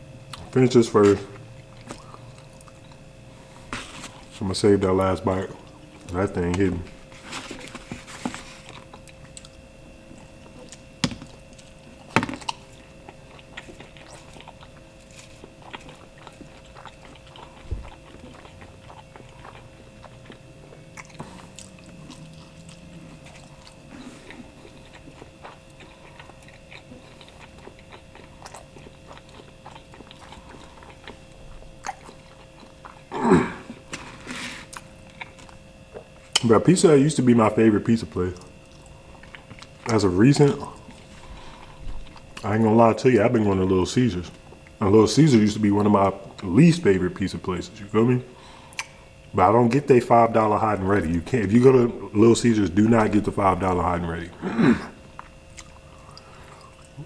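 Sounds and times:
steady background hum: 0.0s - 57.0s
chewing and biting pizza: 0.2s - 57.0s
wet mouth clicks and smacks: 48.7s - 49.0s.

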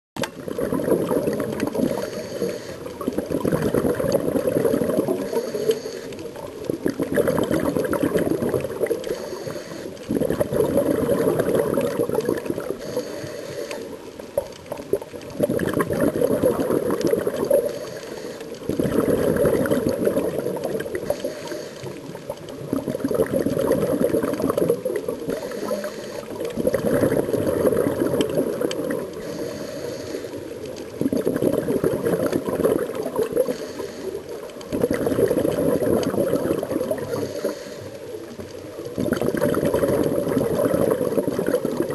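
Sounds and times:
scuba regulator bubbles gurgling: 0.2s - 41.9s.

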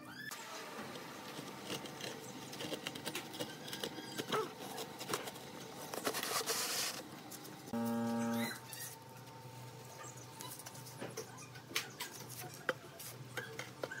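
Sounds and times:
steady buzzing tone: 7.7s - 8.7s.

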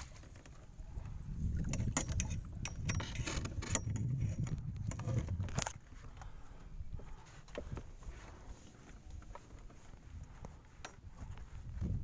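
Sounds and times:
fishing gear clicking and rattling: 0.0s - 6.4s.

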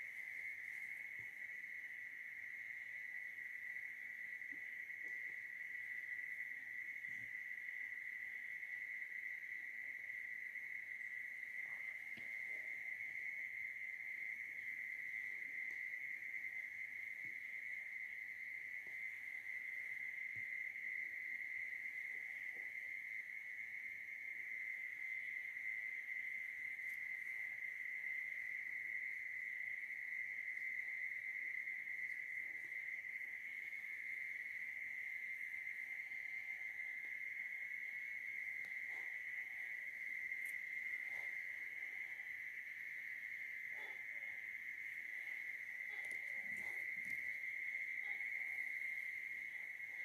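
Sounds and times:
night insects trilling: 0.0s - 50.0s.

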